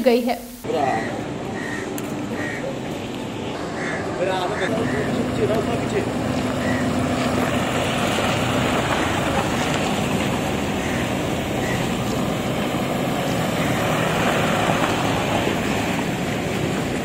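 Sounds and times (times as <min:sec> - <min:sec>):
steady outdoor rushing noise: 0:00.6 - 0:17.0.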